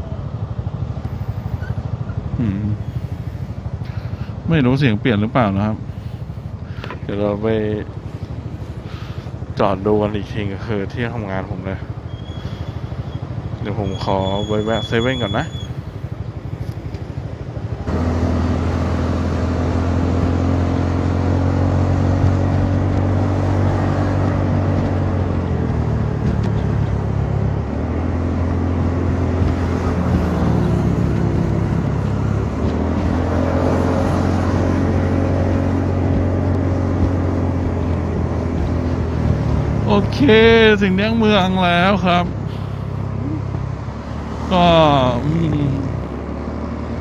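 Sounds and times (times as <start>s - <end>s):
scooter engine: 0.0s - 4.4s, 15.0s - 47.0s.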